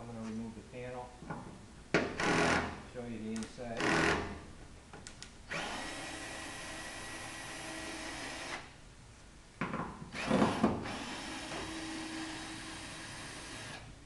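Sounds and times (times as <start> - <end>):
power drill whining: 5.5 - 8.6, 10.1 - 13.9.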